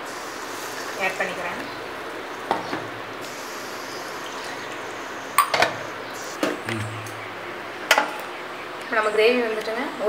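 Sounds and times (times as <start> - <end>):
gravy simmering with hiss: 0.0 - 9.1.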